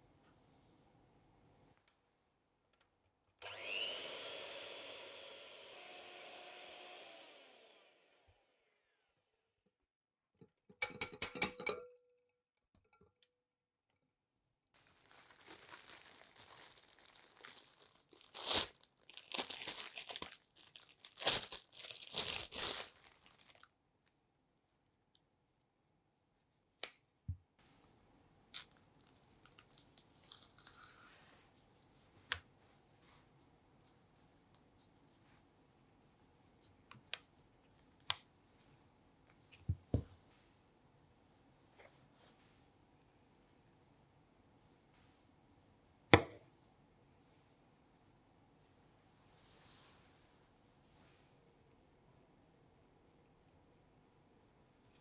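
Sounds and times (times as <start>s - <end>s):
electric hand mixer whine: 3.4s - 9.1s
banana peel tearing: 29.5s - 31.1s.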